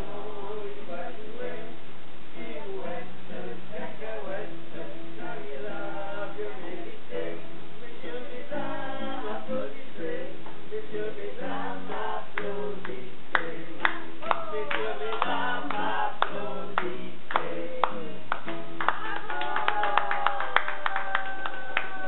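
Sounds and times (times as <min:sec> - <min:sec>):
group singing: 0:00.0 - 0:22.0
hand clapping in time: 0:12.4 - 0:22.0.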